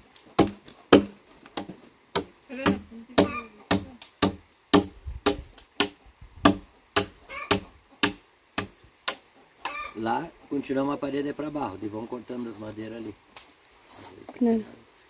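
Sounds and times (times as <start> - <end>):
hand tool striking timber: 0.4 - 9.8.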